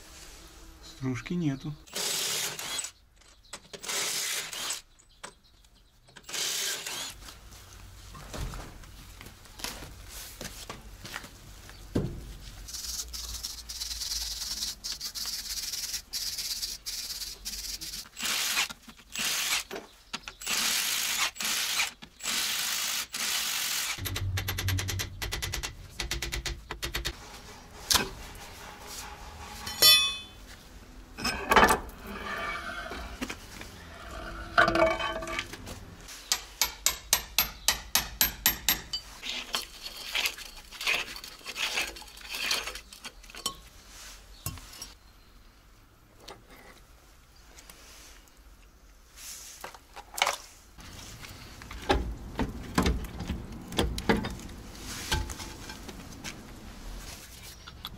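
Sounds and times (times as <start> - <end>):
steel parts clinking: 29.6 - 30.4, 34.1 - 35.6.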